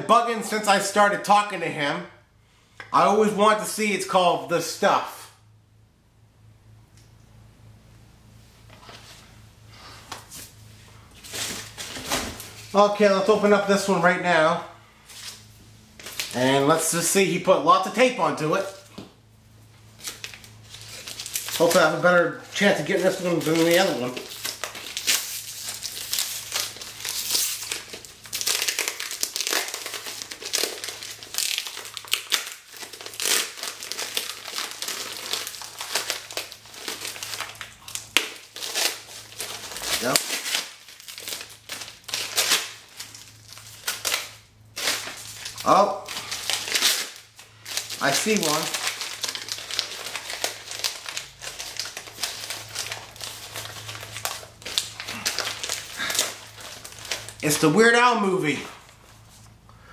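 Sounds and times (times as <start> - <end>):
packing material crinkling: 15.1 - 16.9, 19.9 - 57.8.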